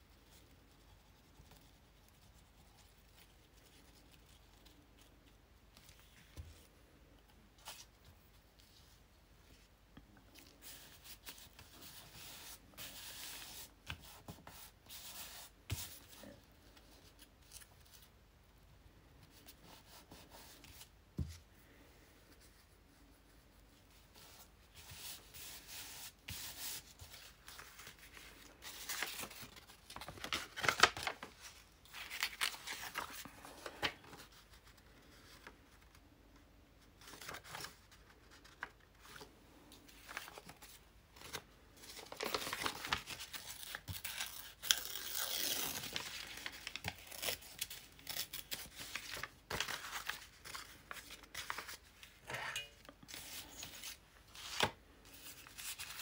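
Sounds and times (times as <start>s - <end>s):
paper rustling: 24.2s - 36.0s, 37.0s - 52.3s
paper tearing: 43.4s - 49.6s.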